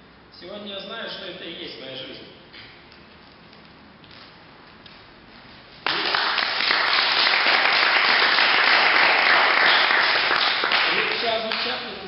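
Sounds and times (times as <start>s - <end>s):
audience applauding: 5.8s - 11.6s.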